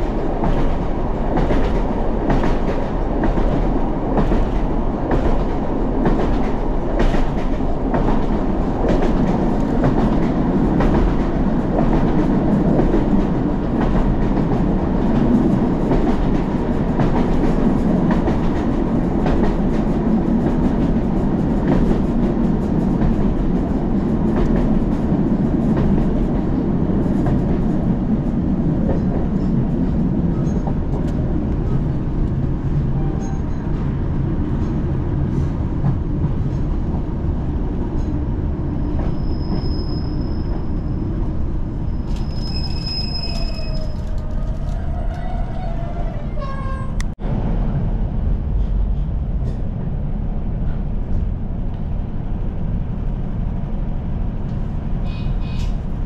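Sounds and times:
train rumble: 0:00.0 - 0:56.0
brake squeals: 0:39.1 - 0:40.9, 0:41.8 - 0:44.4.

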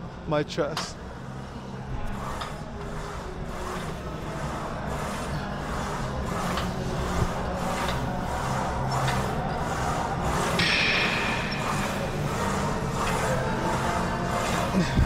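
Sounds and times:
gym background hum: 0:00.0 - 0:15.0.

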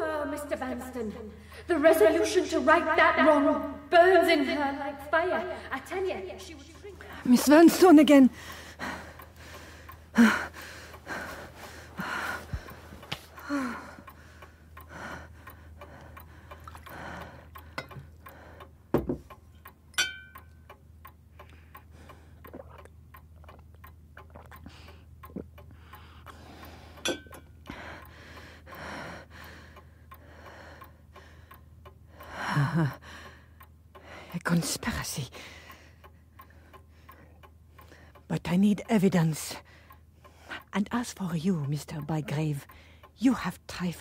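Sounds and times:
clock ticking: 0:00.0 - 0:44.0
person breathing and sighing: 0:08.3 - 0:18.7.

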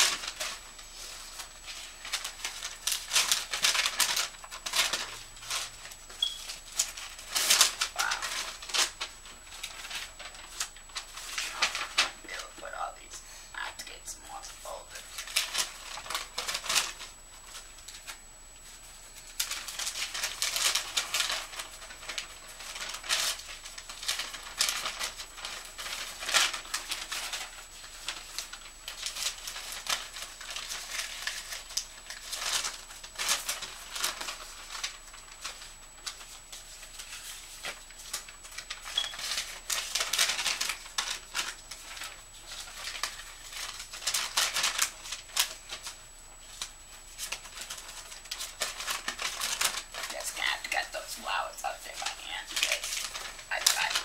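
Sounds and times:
paper rustling and shuffling: 0:00.0 - 0:13.2, 0:13.9 - 0:54.0.

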